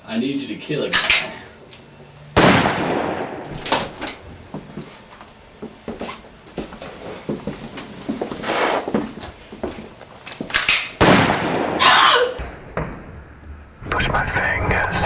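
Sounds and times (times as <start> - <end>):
gunshot ringing: 2.4 - 3.9, 11.0 - 12.6.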